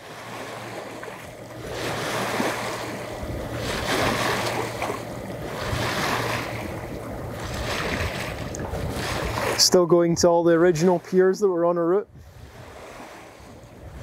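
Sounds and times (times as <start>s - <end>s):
steady low drone: 0.0s - 11.0s
water splashing along a hull: 0.0s - 14.0s
wind on the microphone: 0.7s - 11.0s, 11.9s - 14.0s.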